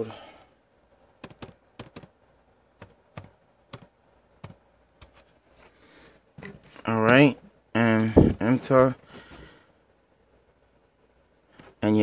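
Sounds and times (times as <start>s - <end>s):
laptop keyboard key presses: 1.2s - 2.2s, 2.8s - 5.1s.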